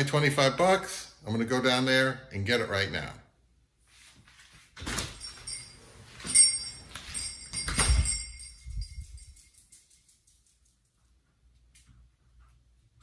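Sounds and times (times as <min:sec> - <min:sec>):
thin metallic ringing: 0:05.1 - 0:10.2.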